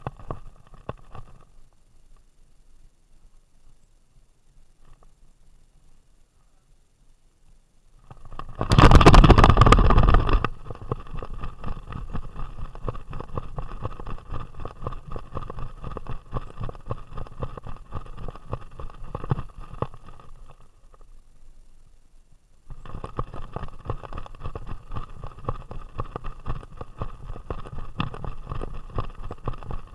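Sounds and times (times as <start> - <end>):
rushing rubbing on camera: 8.1 - 20.7, 22.7 - 29.9
rattle of knocks and jolts: 8.2 - 14.2.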